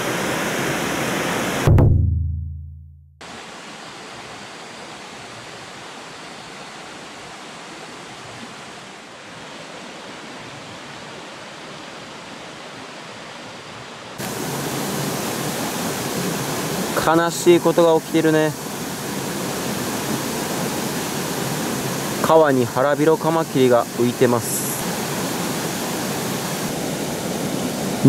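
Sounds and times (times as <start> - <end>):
stream water rushing: 0.0 - 1.7, 3.2 - 28.0
low tone: 1.7 - 3.2.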